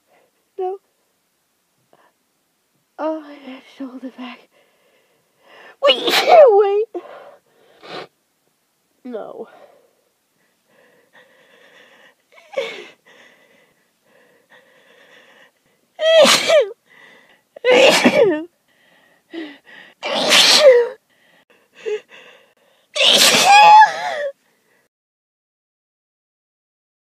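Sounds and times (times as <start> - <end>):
faint breathing: 4.4 - 5.8, 7.0 - 8.1, 9.4 - 16.0, 16.8 - 17.6, 18.6 - 20.0, 21.0 - 22.9
person sneezing: 5.9 - 6.5, 16.0 - 16.8, 17.6 - 18.4, 20.0 - 21.0, 23.0 - 24.3
gasping breaths: 9.5 - 15.8, 21.0 - 22.9.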